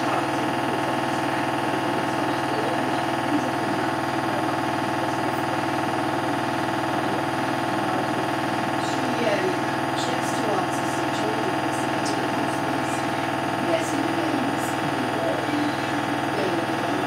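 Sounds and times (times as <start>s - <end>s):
washing machine spinning: 0.0s - 17.0s.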